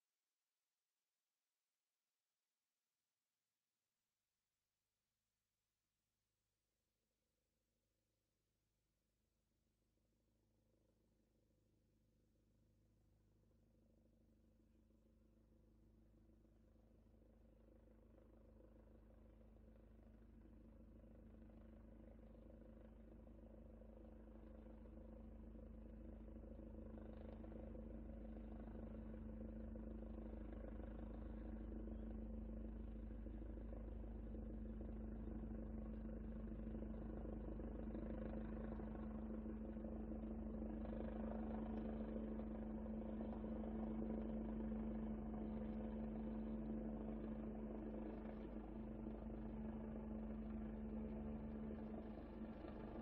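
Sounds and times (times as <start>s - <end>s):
helicopter engine drone: 25.5s - 53.0s
helicopter rotor beat: 33.6s - 53.0s.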